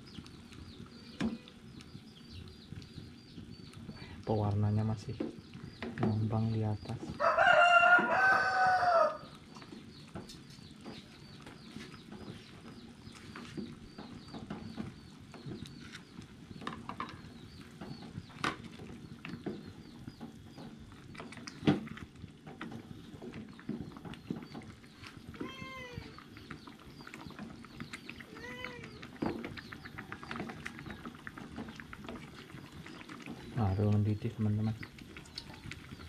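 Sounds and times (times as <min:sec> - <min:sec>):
cat meowing: 0:25.4 - 0:26.1, 0:28.3 - 0:28.9.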